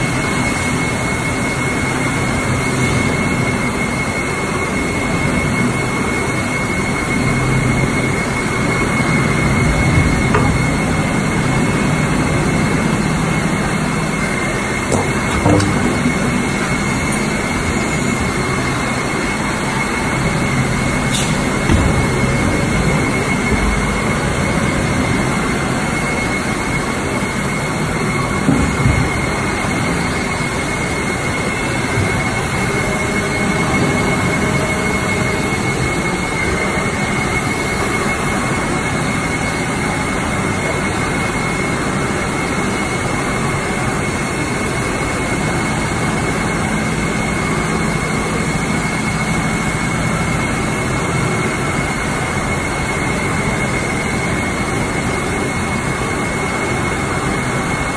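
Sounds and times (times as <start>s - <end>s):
factory machinery running: 0.0s - 57.9s
brief knocks: 10.2s - 11.0s, 14.9s - 17.3s.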